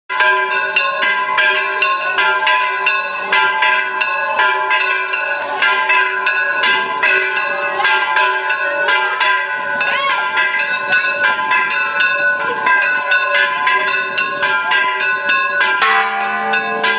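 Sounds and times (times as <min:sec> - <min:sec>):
church bells ringing rapidly: 0:00.1 - 0:16.9.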